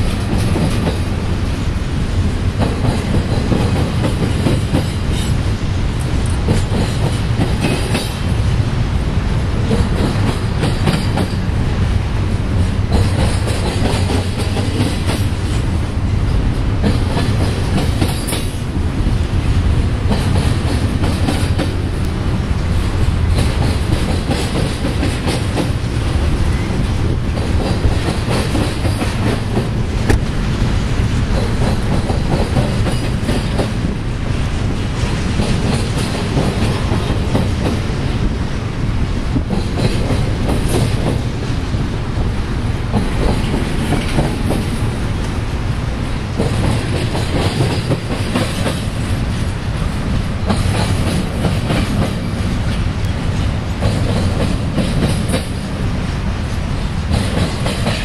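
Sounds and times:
clickety-clack of wheel clicks: 0.0 - 1.0, 2.6 - 5.4, 6.0 - 8.2, 9.7 - 11.4, 12.9 - 15.3, 16.8 - 18.6, 20.1 - 21.8, 23.3 - 25.8, 27.4 - 30.2, 31.4 - 33.8, 35.1 - 37.8, 39.4 - 41.2, 42.9 - 44.8, 46.4 - 49.5, 50.5 - 55.6, 57.1 - 58.0
train wheels rumbling on rail: 0.0 - 58.0.

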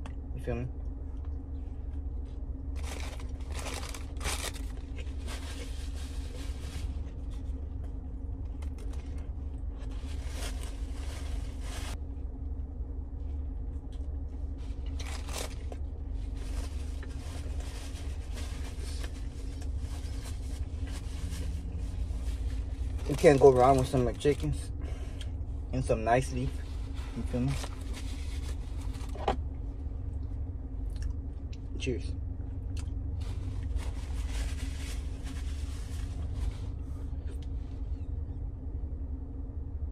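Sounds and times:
car cabin hum: 0.0 - 39.9
paper wrapper crinkling: 2.8 - 7.4, 14.8 - 24.0.

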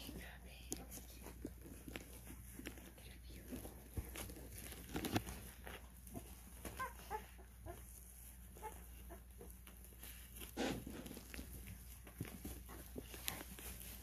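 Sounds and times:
soft rustling: 0.0 - 14.0
puppies squeaking and whimpering: 4.2 - 14.0.

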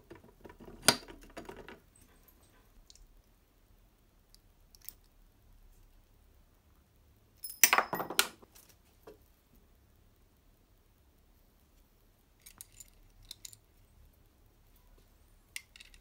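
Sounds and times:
metal parts clinking: 12.4 - 13.6, 15.6 - 16.0.

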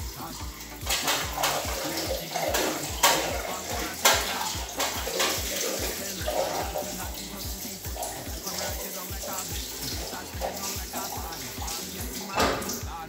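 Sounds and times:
dishes clattering in sink: 0.0 - 13.0
tap running into sink: 0.0 - 13.0.

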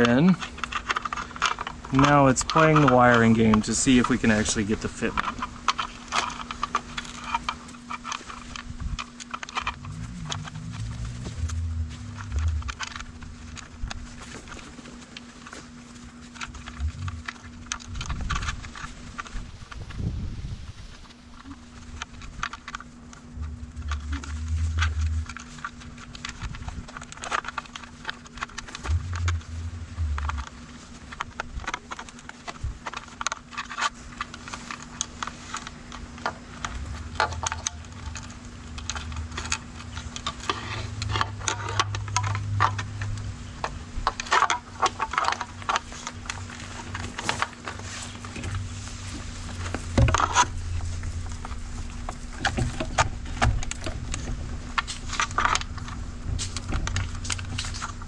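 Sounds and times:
wiring rustling and scraping: 0.0 - 58.0.

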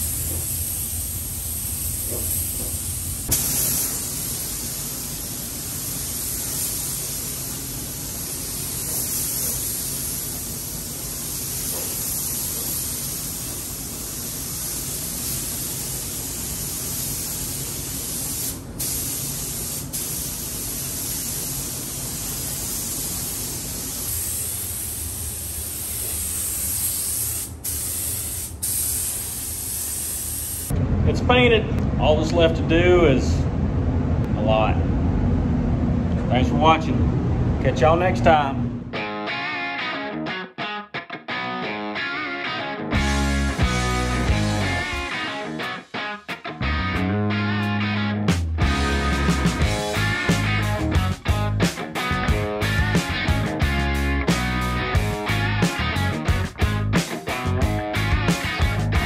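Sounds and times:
paint spray gun hissing: 0.0 - 30.7.

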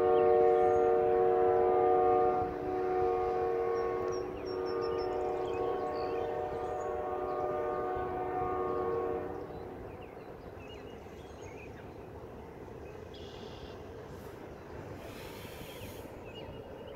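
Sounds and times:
locomotive horn: 0.0 - 9.6.

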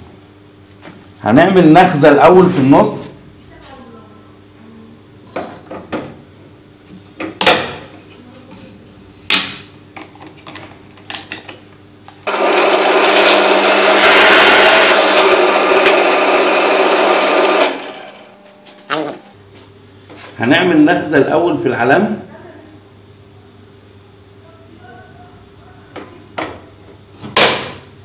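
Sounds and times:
drill press motor hum: 12.2 - 19.4
drill bit drilling wood: 12.3 - 17.9.

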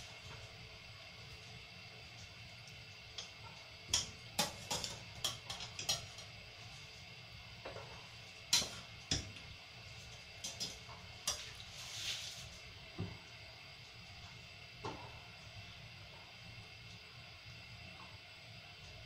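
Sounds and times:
soft rustle: 11.6 - 12.6.

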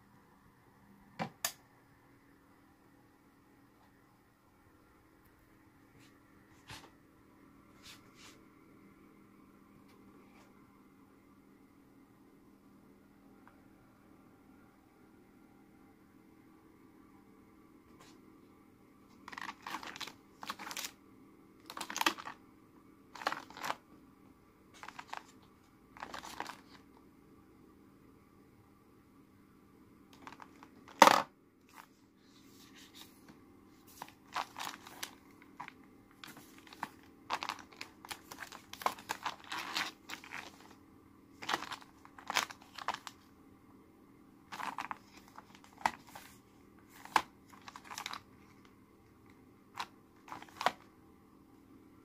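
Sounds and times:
faint steady hum: 0.0 - 52.0
plastic sachets crinkling: 19.2 - 21.0, 21.6 - 22.4, 23.2 - 23.8, 24.8 - 26.8, 30.2 - 32.0, 33.8 - 40.8, 41.4 - 43.3, 44.5 - 48.7, 49.7 - 50.9.

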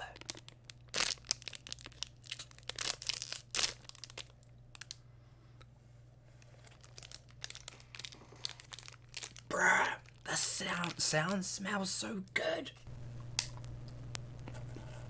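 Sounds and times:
plastic wrapper crinkling: 0.0 - 5.0, 6.4 - 11.7.

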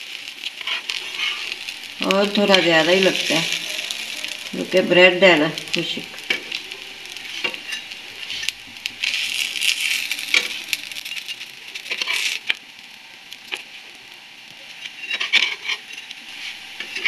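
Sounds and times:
bread sizzling in hot oil: 0.0 - 17.0
metal spatula clicks and scrapes: 0.5 - 1.6, 7.2 - 12.6, 14.8 - 16.2.

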